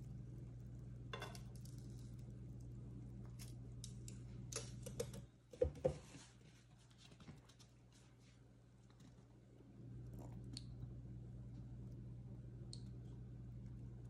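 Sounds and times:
steady low hum: 0.0 - 14.0
tongs knocking on stone countertop: 1.1 - 1.4.

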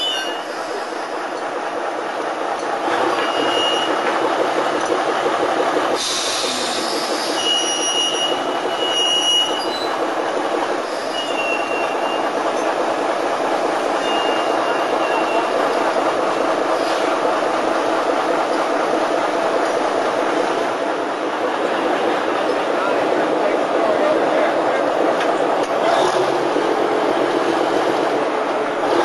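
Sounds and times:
crane engine running: 0.0 - 29.0
short high-pitched squeals: 3.1 - 4.0, 6.2 - 10.0, 11.0 - 12.3, 14.0 - 15.5.

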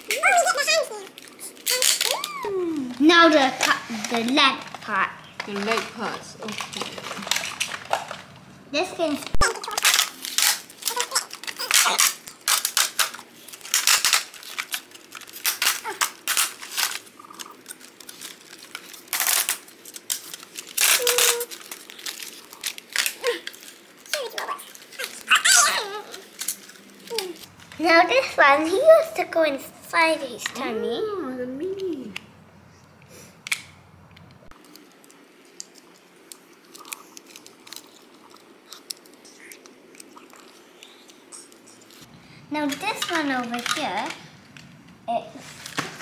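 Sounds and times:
plastic rattling: 3.0 - 8.4, 9.2 - 28.0, 42.6 - 44.8
plastic toy parts clicking: 9.3 - 27.4, 34.2 - 41.7, 42.6 - 44.7.

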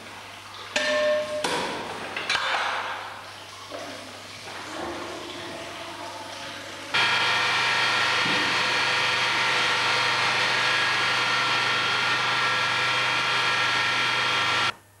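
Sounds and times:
cream separator machine whine: 7.0 - 14.8.

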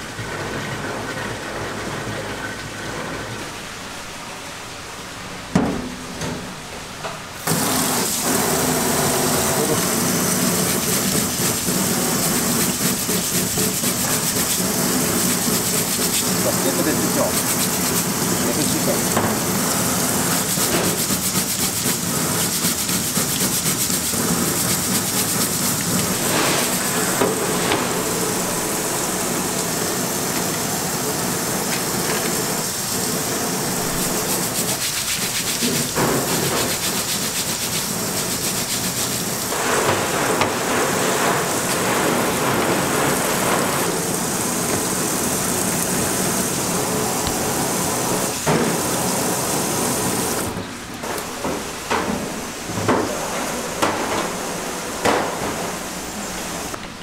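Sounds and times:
brush scrubbing shells: 9.0 - 29.7, 33.6 - 43.6.

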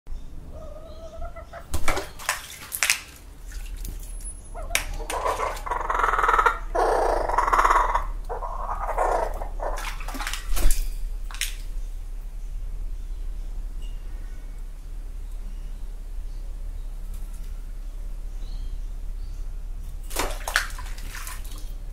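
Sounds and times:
kookaburra calling: 0.4 - 1.7, 4.4 - 10.0
water splashing in birdbath: 1.2 - 12.3, 19.8 - 21.9.

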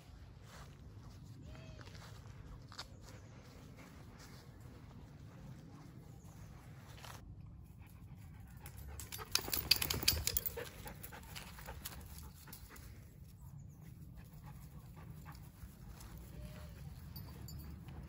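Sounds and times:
dog panting: 7.8 - 13.0
clicking and rustling: 8.6 - 12.6.

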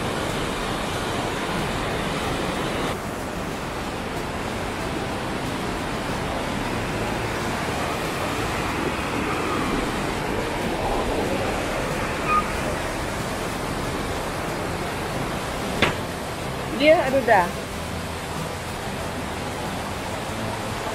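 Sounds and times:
fast-flowing water rushing: 0.0 - 20.9.

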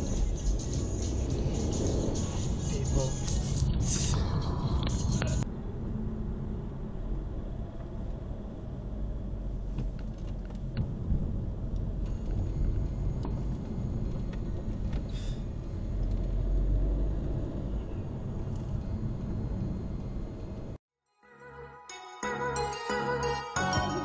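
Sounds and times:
car engine and tyre rumble: 0.0 - 20.8.

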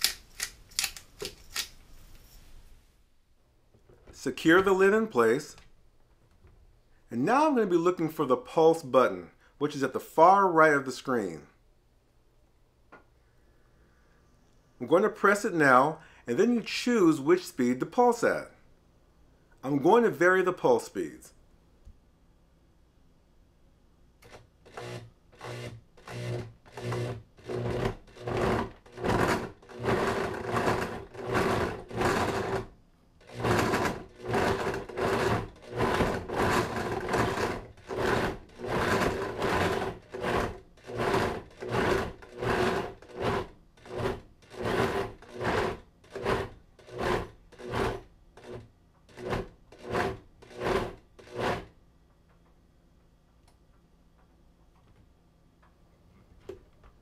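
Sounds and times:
blender pulsing: 24.7 - 32.6, 33.2 - 48.6.

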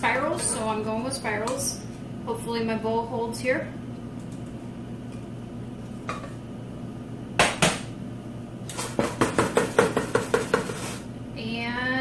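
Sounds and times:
utensil knocking against a dish: 8.8 - 10.9.

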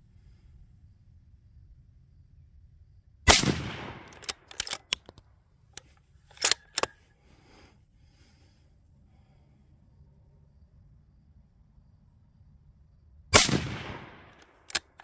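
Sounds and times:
rifle shot: 3.2 - 4.8, 13.3 - 15.0.

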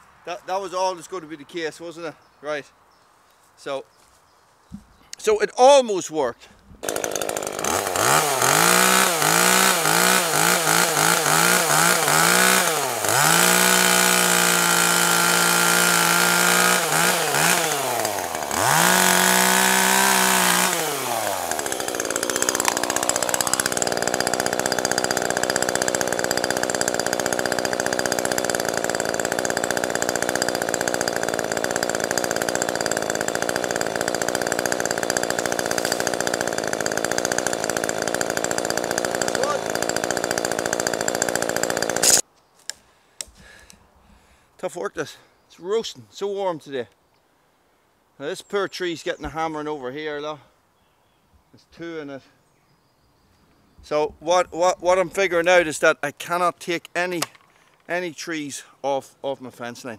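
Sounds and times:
chainsaw idling: 6.8 - 42.2, 57.2 - 58.0
chainsaw revving and cutting: 6.8 - 42.2.

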